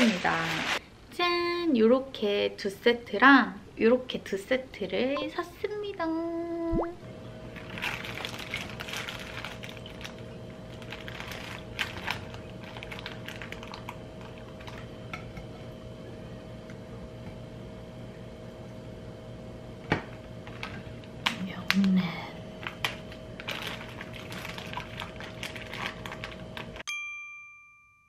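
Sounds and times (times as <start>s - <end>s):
plastic bag rustling: 0.0s - 0.8s, 7.5s - 14.9s, 20.4s - 21.8s, 22.5s - 26.8s
faint steady hum: 0.0s - 26.8s.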